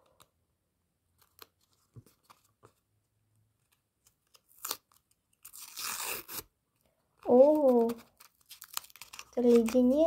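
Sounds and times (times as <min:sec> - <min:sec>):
paper tearing: 0:04.4 - 0:06.5.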